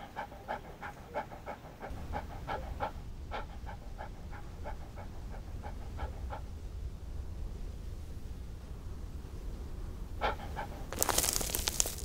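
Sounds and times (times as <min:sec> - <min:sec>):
dog panting: 0:00.0 - 0:06.6, 0:10.2 - 0:12.0.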